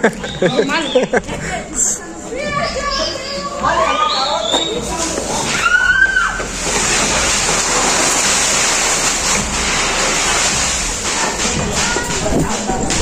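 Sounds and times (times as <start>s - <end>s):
fireworks hissing sparks: 4.4s - 13.0s.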